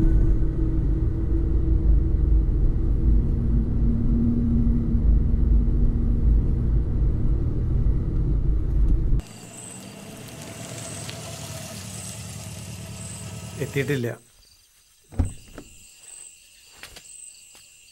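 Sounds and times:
vehicle engine and road rumble: 0.0s - 14.2s.

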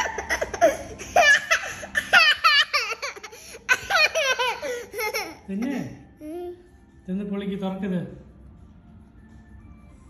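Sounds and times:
child laughing: 0.0s - 6.6s.

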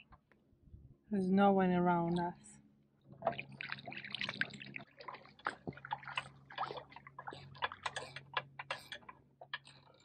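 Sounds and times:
water splashing from kicking feet: 3.2s - 8.0s.

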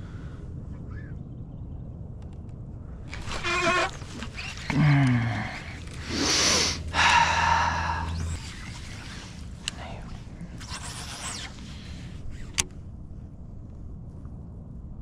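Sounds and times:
low steady hum: 0.0s - 15.0s
short rushes of noise: 3.1s - 12.6s
man crying out and groaning: 4.6s - 8.2s.

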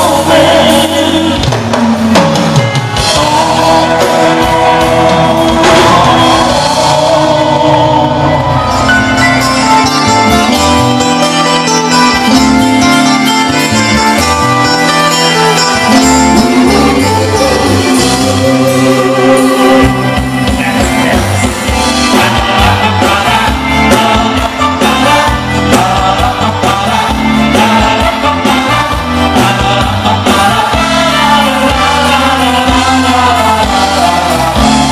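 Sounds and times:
singers: 0.0s - 9.5s, 15.5s - 34.9s
live band playing dance music: 0.0s - 34.9s.

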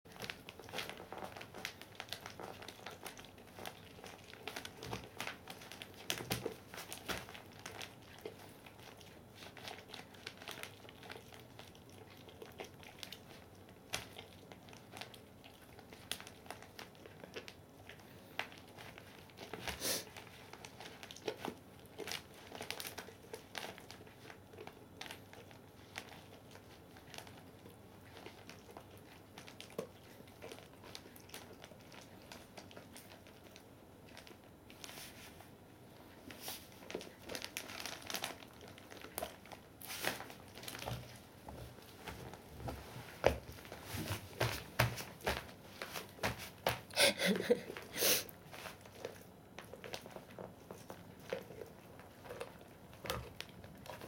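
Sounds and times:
dog crunching a chew treat: 0.1s - 35.3s, 36.0s - 46.9s, 47.6s - 54.0s
newspaper crinkling: 36.3s - 49.2s.

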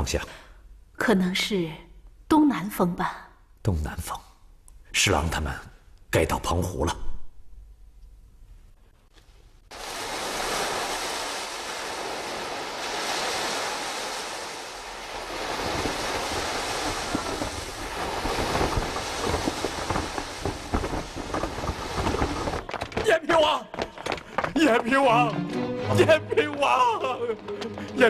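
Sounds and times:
sea waves: 9.6s - 23.1s
gusty wind: 9.7s - 22.8s.

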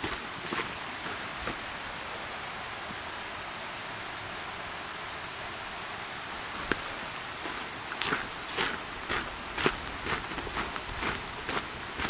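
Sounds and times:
footstep on dirt trail: 0.0s - 1.7s, 6.4s - 12.0s
stream rushing: 0.0s - 12.0s.

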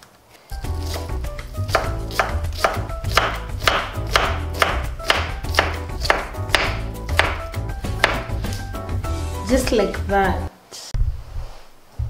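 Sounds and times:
background music: 0.5s - 10.5s
knife chopping on wooden board: 0.7s - 8.8s.

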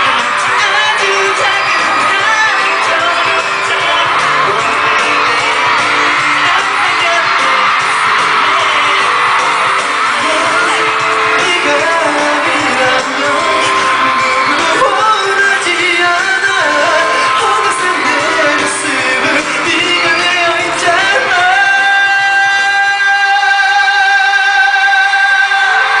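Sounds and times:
live pop music with man singing: 0.0s - 26.0s.

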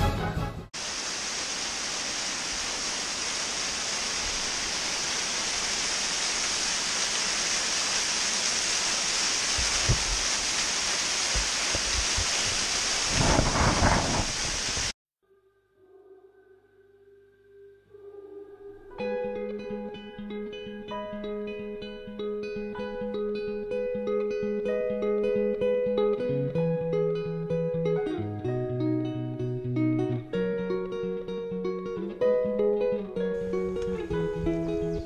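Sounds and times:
waterfall rushing: 0.8s - 14.9s, 33.4s - 35.0s
low thumps: 9.6s - 10.3s.

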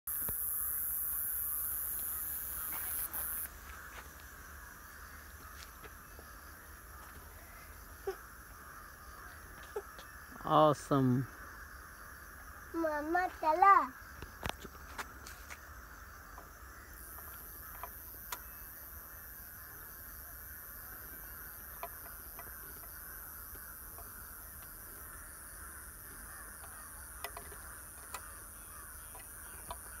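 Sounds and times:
outdoor background hiss: 0.1s - 30.0s
crows cawing: 2.0s - 14.6s, 15.6s - 30.0s
birds calling harshly: 20.8s - 30.0s.

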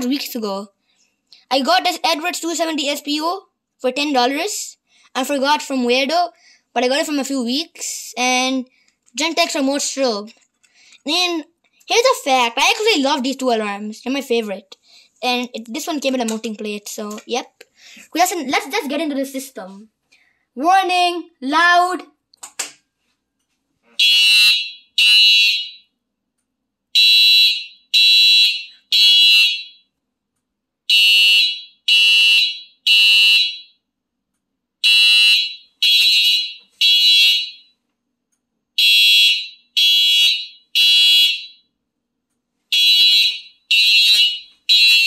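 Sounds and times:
fire alarm horn blasts: 24.0s - 25.9s, 27.0s - 29.9s, 30.9s - 33.8s, 34.8s - 37.7s, 38.8s - 41.7s, 42.7s - 45.0s.

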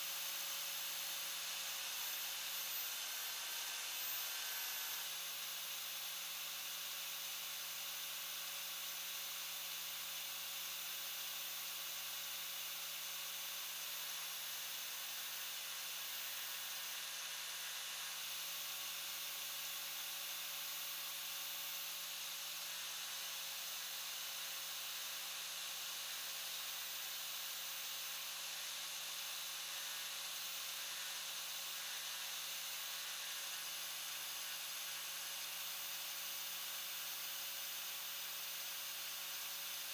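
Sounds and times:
angle grinder grinding metal: 2.4s - 5.1s.

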